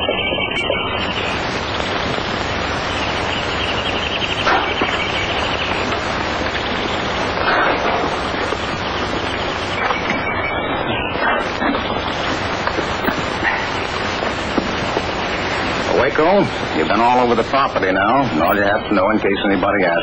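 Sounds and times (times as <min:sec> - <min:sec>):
old film crackling hiss: 0:00.0 - 0:20.0.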